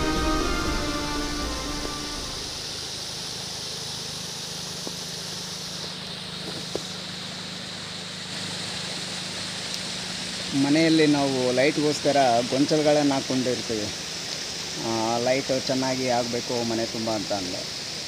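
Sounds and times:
background music: 0.0s - 2.6s
stream running over stones: 0.0s - 18.0s.

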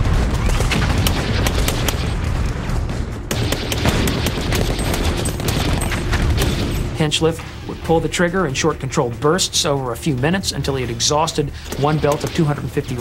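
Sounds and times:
machine gun firing bursts: 0.0s - 6.8s
battle gunfire: 0.0s - 7.0s, 11.6s - 13.0s
low booms: 0.0s - 7.7s.

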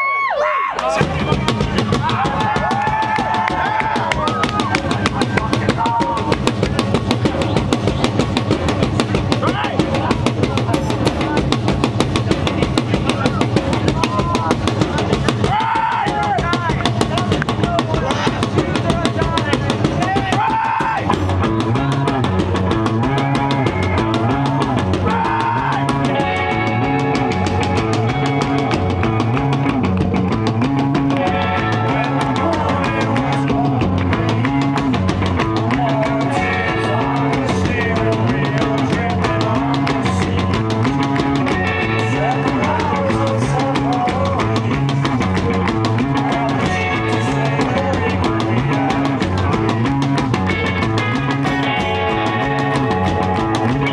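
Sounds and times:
driving drum kit: 0.0s - 53.9s
bass guitar riff: 0.8s - 53.9s
electric guitar: 21.0s - 53.9s.

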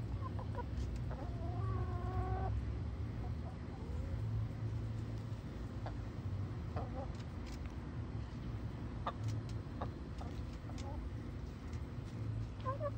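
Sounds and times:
hens clucking: 0.0s - 4.2s, 5.7s - 7.3s, 8.9s - 11.8s, 12.5s - 12.9s.

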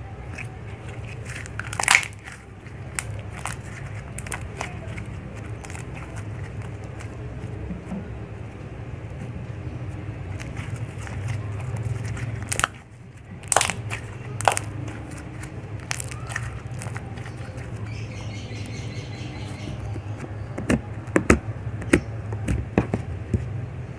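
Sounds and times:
slime snapping and popping: 1.1s - 7.1s, 10.4s - 12.8s, 13.4s - 17.8s.

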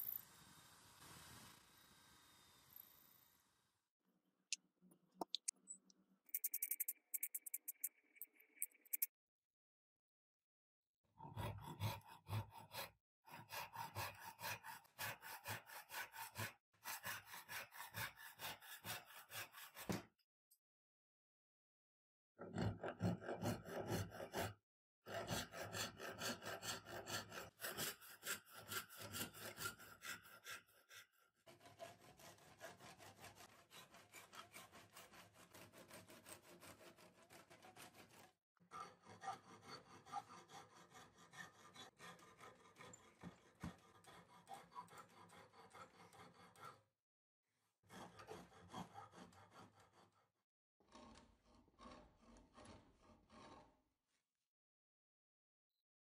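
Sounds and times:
hand saw cutting wood: 11.2s - 20.2s, 22.4s - 46.9s, 47.9s - 54.1s.

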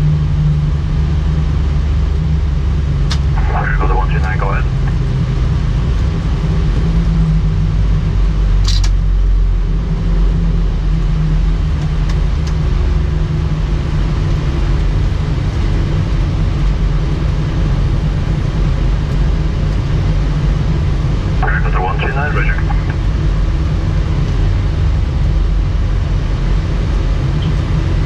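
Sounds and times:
aircraft engines idling rumble: 0.0s - 28.0s
sharp click: 8.6s - 9.0s.

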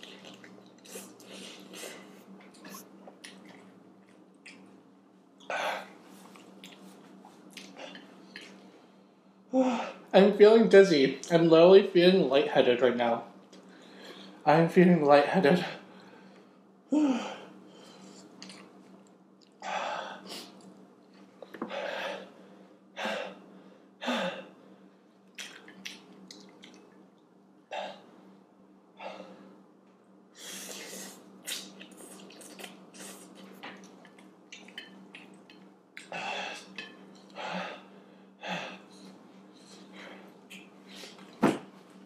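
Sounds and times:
chewing: 0.0s - 1.4s, 2.4s - 4.7s, 6.2s - 8.6s, 18.2s - 18.8s, 25.3s - 26.9s, 31.5s - 37.4s
man breathing heavily: 21.6s - 25.0s, 29.0s - 29.5s, 36.1s - 36.7s, 37.3s - 41.2s.

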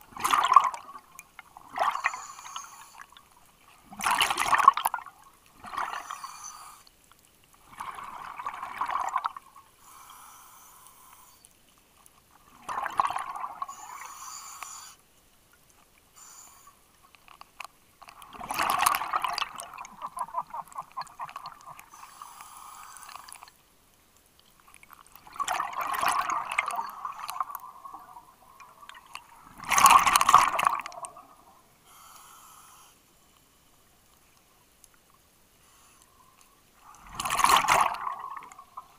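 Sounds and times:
gurgling exhaled bubbles underwater: 0.0s - 2.2s, 3.8s - 6.2s, 7.7s - 9.5s, 12.5s - 14.0s, 18.2s - 21.9s, 25.2s - 31.4s, 37.0s - 38.9s.

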